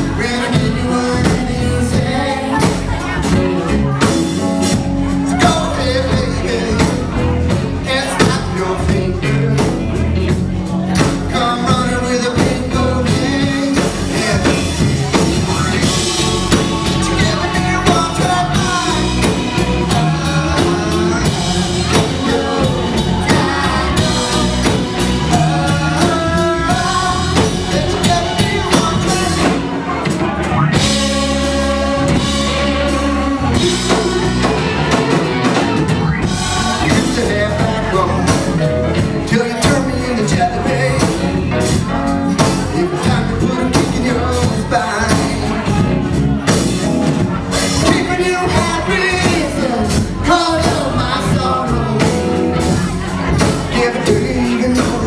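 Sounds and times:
bass guitar: 0.0 - 55.0
drum kit: 0.0 - 55.0
electric guitar: 0.0 - 55.0
man singing: 0.0 - 55.0.

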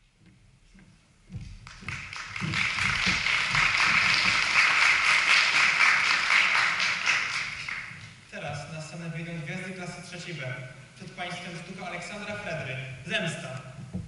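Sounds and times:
audience applauding: 1.6 - 8.1.

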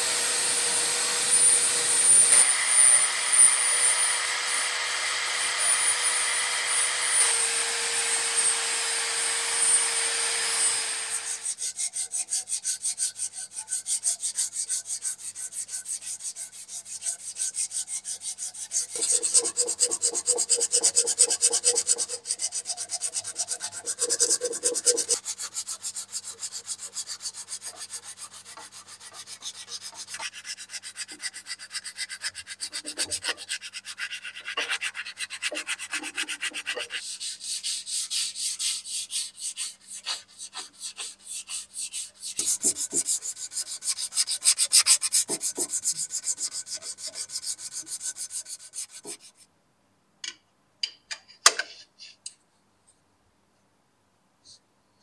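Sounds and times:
sandpaper rubbing on metal: 11.1 - 49.5.

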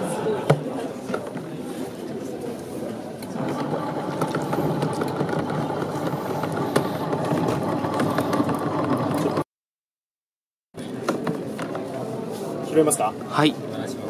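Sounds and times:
washing machine churning water: 3.4 - 9.5.

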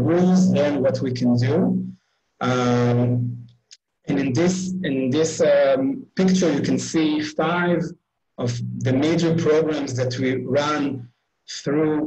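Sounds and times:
man saying uhh: 0.0 - 1.7, 2.4 - 3.4, 4.1 - 12.0.

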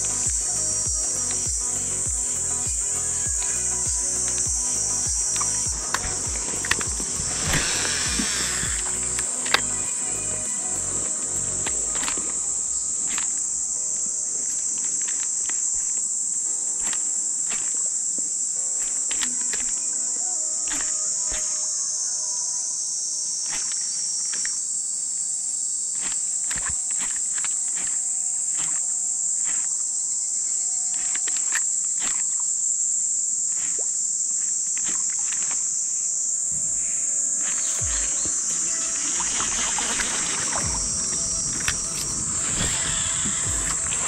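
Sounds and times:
insect chorus drone: 0.0 - 44.0
low thumps: 0.2 - 10.4, 37.8 - 44.0.

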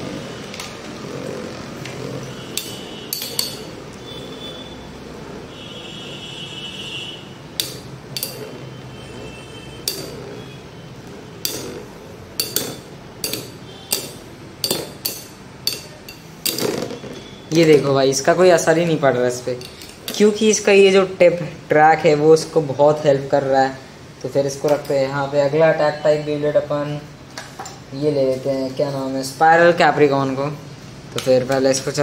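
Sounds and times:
metallic clinks of colliding tops: 2.6 - 3.7, 7.6 - 8.5.

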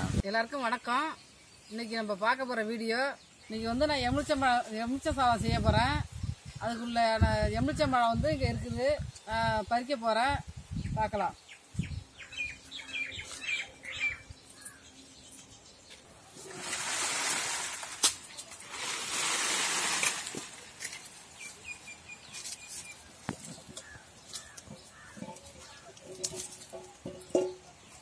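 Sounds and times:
small birds chirping: 5.5 - 16.4, 20.5 - 28.0
footsteps in dry leaves: 12.5 - 26.8.

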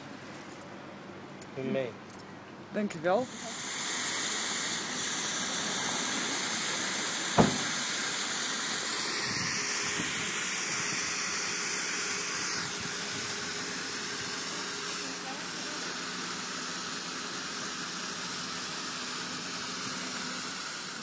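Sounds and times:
flares burning with a hiss: 3.2 - 21.0
sharp knock: 7.4 - 8.0.

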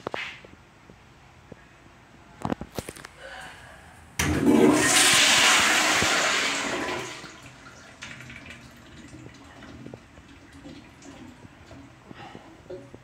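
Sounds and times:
toilet flushing: 4.2 - 12.1.

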